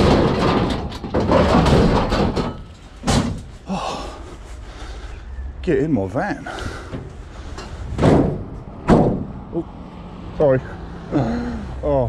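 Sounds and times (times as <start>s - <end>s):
sheet metal scraping and clattering: 0.0s - 3.6s, 6.6s - 9.4s.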